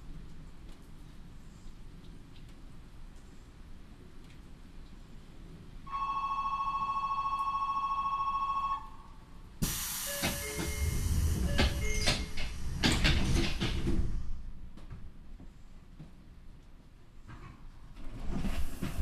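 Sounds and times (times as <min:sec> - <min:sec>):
air hiss of sliding doors: 0:09.6 - 0:14.8, 0:18.2 - 0:19.0
doors knocking and squealing: 0:10.2 - 0:14.1.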